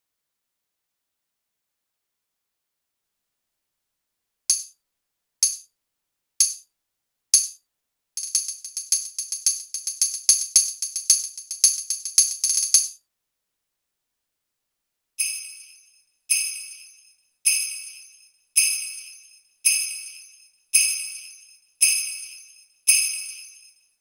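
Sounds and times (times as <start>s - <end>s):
electronic tambourine hits: 4.5s - 4.7s, 5.4s - 5.6s, 8.2s - 13.0s.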